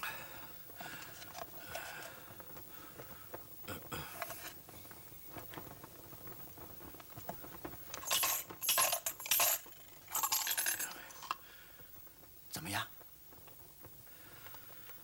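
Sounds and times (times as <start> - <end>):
coins rattling and jangling: 8.0 - 11.4.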